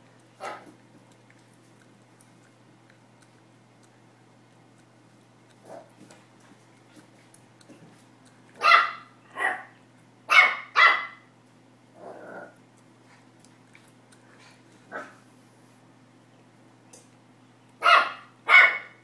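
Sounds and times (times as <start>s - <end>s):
puppy barking: 0.4s - 0.7s, 8.6s - 11.3s, 14.9s - 15.2s, 17.8s - 19.0s.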